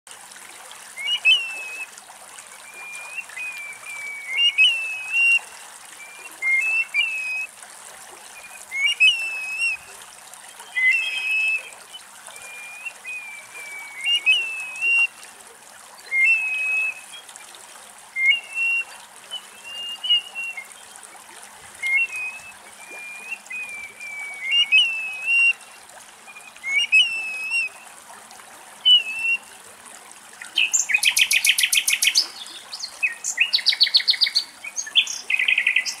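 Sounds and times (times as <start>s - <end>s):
bird plaintive slurred whistle: 1.0s - 1.9s, 2.6s - 7.5s, 8.4s - 9.9s, 10.7s - 15.1s, 16.0s - 17.2s, 18.2s - 20.7s, 21.8s - 25.7s, 26.3s - 27.8s, 28.8s - 29.5s, 30.5s - 36.0s.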